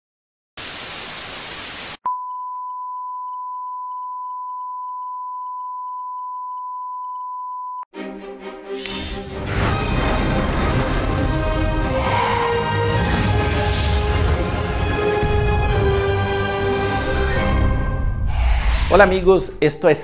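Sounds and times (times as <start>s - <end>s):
music: 7.9s - 19.1s.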